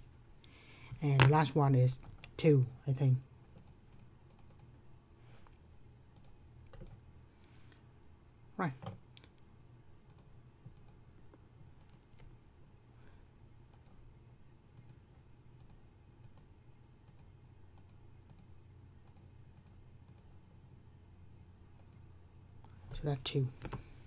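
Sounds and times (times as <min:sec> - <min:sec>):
low steady hum: 0:00.0 - 0:24.0
computer mouse clicks: 0:03.6 - 0:04.7, 0:06.2 - 0:07.0, 0:10.1 - 0:11.0, 0:11.8 - 0:12.3, 0:13.7 - 0:14.0, 0:14.8 - 0:15.0, 0:15.6 - 0:16.5, 0:17.1 - 0:20.3, 0:21.8 - 0:22.0.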